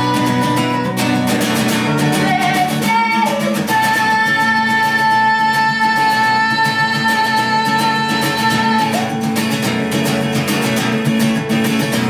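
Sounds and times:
woman singing: 0.0 - 9.6
acoustic guitar strumming: 0.0 - 12.0.

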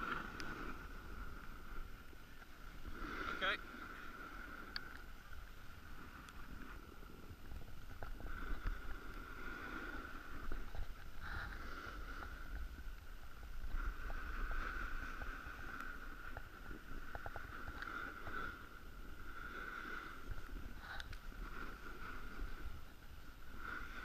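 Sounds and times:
snowboard sliding over snow: 0.0 - 24.0
wind rumbling on microphone: 0.0 - 24.0
faint clicks: 4.6 - 5.5, 6.2 - 6.5, 15.0 - 18.4, 20.3 - 21.3.

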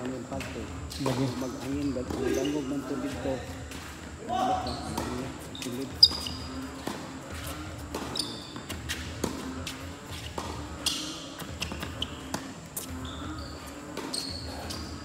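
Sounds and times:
ball bouncing on hard court: 0.3 - 2.6, 4.7 - 13.2, 13.9 - 15.0
tennis racquets striking ball: 4.8 - 13.0, 13.9 - 14.9.

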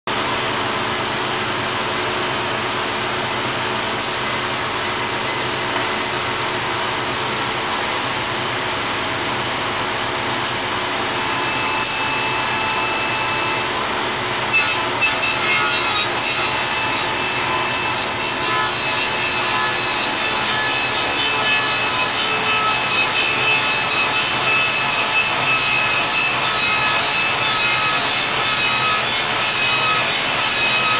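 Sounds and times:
lathe machine hum: 0.1 - 30.9
wood-cutting noise: 10.8 - 30.9.

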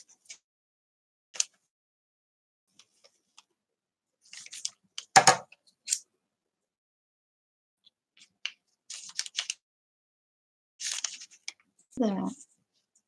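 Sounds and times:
paper crinkling and rustling: 4.2 - 6.0, 8.2 - 9.6, 10.8 - 13.0.

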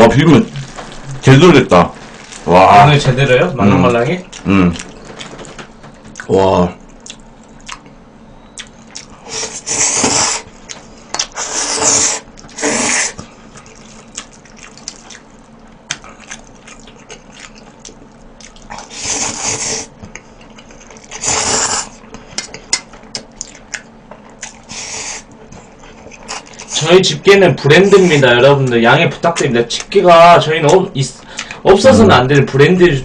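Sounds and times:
chewing: 3.8 - 26.8
person slurping noodles: 11.4 - 13.2, 21.2 - 21.9.

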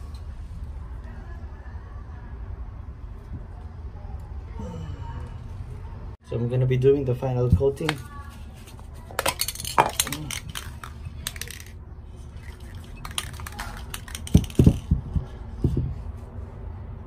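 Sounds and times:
spray can rattling: 9.1 - 15.2.

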